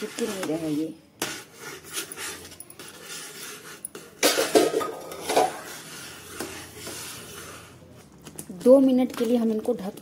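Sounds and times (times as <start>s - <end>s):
metal spatula scraping pan: 0.0s - 7.9s.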